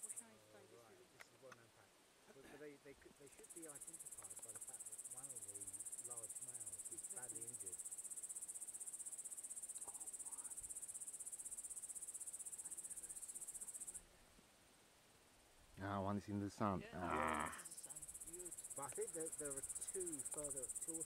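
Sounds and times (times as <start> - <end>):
insect trilling: 3.2 - 14.0, 17.0 - 21.0.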